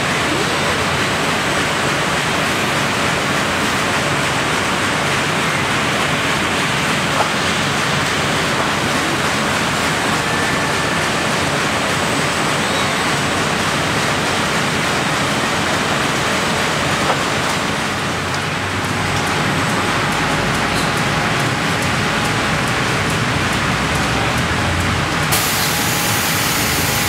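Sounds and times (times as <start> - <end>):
loud rushing hiss: 25.3 - 27.0.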